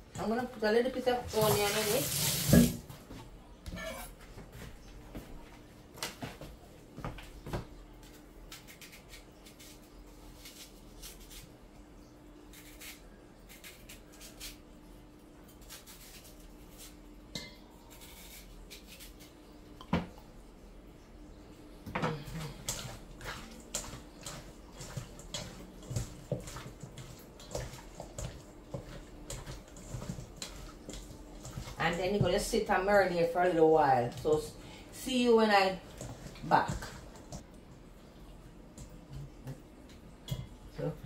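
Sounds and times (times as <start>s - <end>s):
kitchen tap running: 1.1s - 2.9s
faint steady hum: 2.8s - 41.0s.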